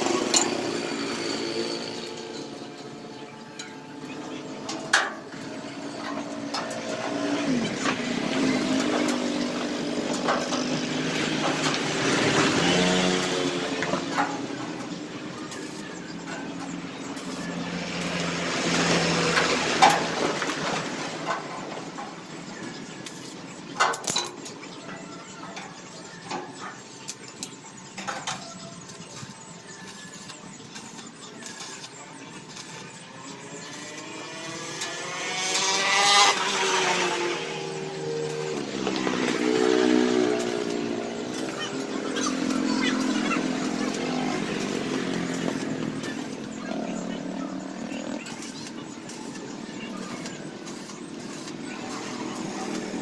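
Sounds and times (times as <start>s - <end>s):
vehicle engines passing: 0.0s - 53.0s.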